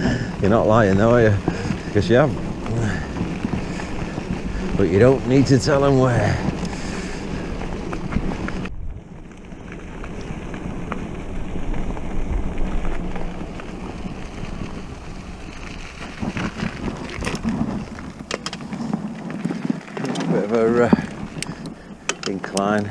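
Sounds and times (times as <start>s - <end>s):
bike tyre rumble: 0.0s - 22.9s
wind on microphone: 0.0s - 22.9s
small rattles: 11.7s - 22.9s.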